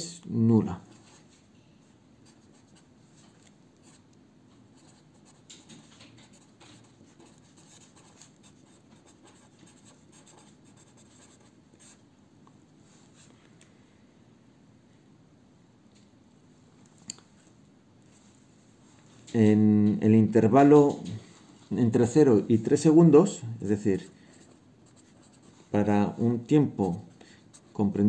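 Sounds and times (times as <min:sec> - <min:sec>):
pen scratching on paper: 0:04.8 - 0:12.0, 0:24.0 - 0:25.7.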